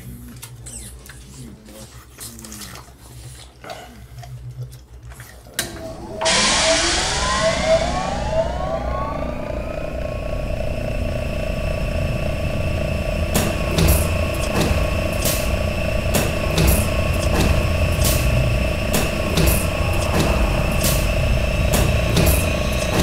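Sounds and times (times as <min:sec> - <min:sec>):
hiss with tones sliding up: 0:05.7 - 0:17.2
electronic sound effect: 0:05.8 - 0:12.1.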